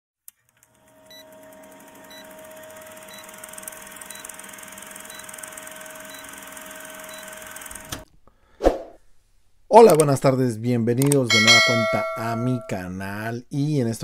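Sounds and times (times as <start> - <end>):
film projector humming and crackling: 0.3 - 8.1.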